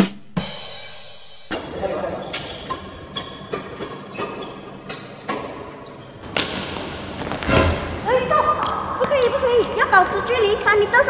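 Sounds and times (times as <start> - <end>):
racket hitting shuttlecock: 1.5 - 8.0
shoe squeaks: 1.5 - 10.4
footsteps on court floor: 1.5 - 11.0.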